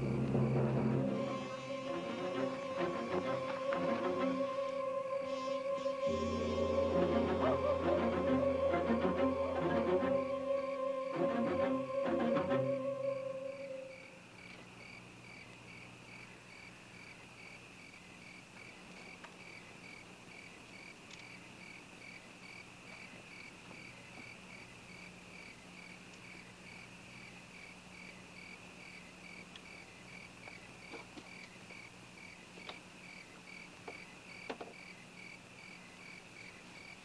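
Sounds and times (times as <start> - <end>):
low steady hum: 0.0 - 16.1
cricket chirping: 0.0 - 37.0.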